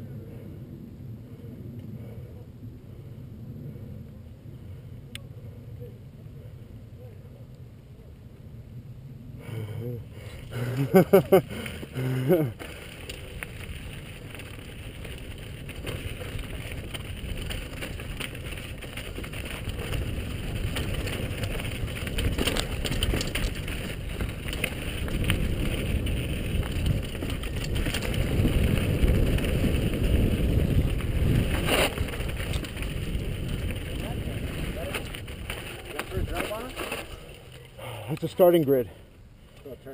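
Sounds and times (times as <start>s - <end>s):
wind rushing over microphone: 8.6s - 36.7s
tyres on loose gravel: 9.4s - 39.9s
bike rattling over rocks: 10.3s - 38.6s.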